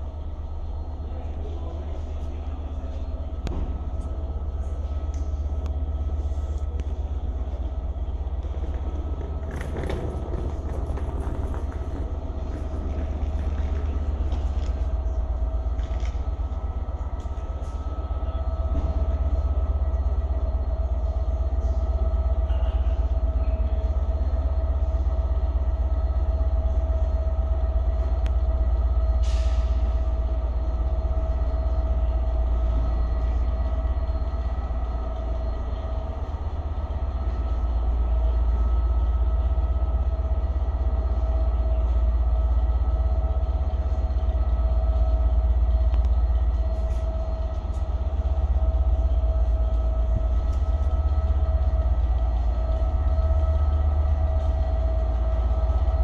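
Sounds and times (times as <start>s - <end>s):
diesel locomotive idling: 0.0s - 56.0s.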